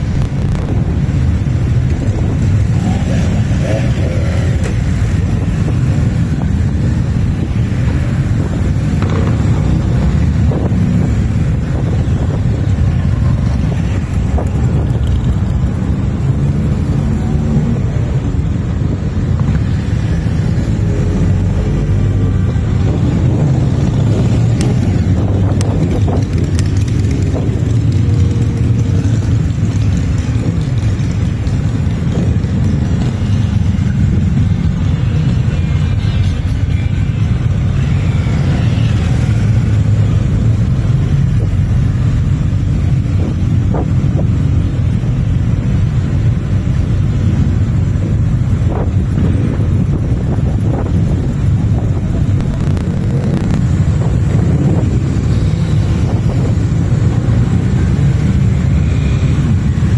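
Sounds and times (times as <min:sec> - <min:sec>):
motorcycles riding past: 0:00.0 - 0:18.4, 0:19.4 - 0:46.4.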